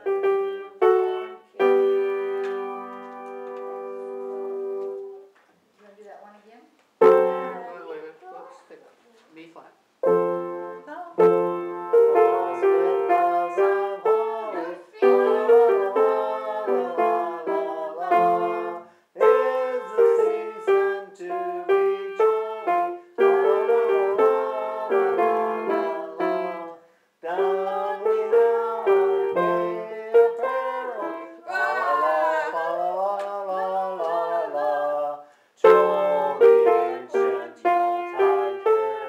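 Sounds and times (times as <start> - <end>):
piano playing: 0.0 - 5.3, 7.0 - 8.2, 10.0 - 32.4, 35.6 - 39.0
people singing along: 11.9 - 39.0.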